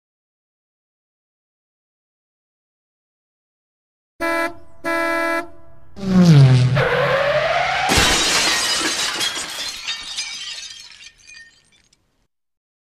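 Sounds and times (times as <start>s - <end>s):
car horn honk: 4.2s - 6.8s
cartoon tire screech: 6.0s - 8.1s
crash with glass shattering: 7.4s - 12.0s.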